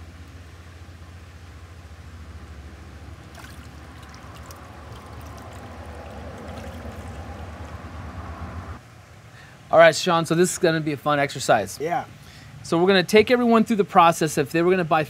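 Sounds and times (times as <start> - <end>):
steady low hum: 0.0 - 9.5
water splashing and trickling: 0.4 - 8.8.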